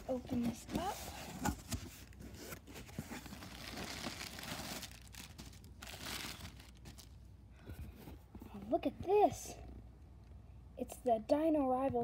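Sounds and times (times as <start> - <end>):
plastic packing crinkling: 1.5 - 7.3.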